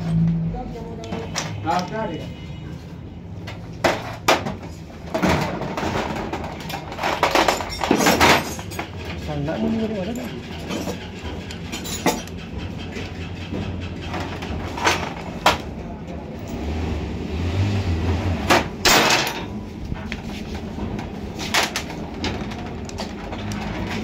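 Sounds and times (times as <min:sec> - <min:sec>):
metal tools clinking and knocking: 0:05.1 - 0:15.6, 0:18.8 - 0:19.6.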